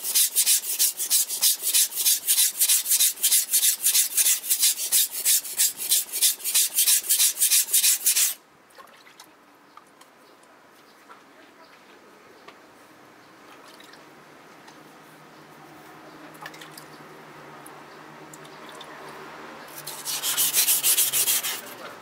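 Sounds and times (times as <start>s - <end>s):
knife scraping on whetstone: 0.0s - 8.4s, 19.7s - 21.8s
faint water drips: 8.6s - 10.6s, 13.4s - 14.1s, 16.2s - 17.0s, 17.6s - 19.3s.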